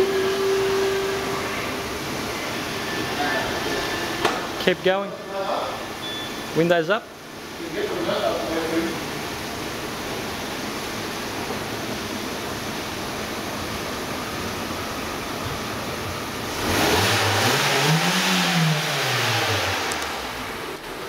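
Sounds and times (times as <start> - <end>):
car engine revving: 16.5 - 21.0.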